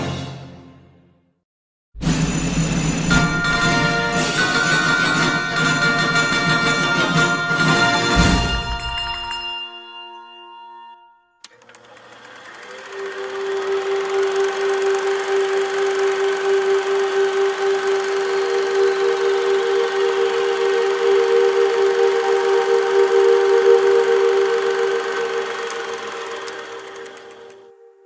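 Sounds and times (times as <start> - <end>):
fanfare chord: 3.1 - 11.2
steady droning note: 12.9 - 27.0.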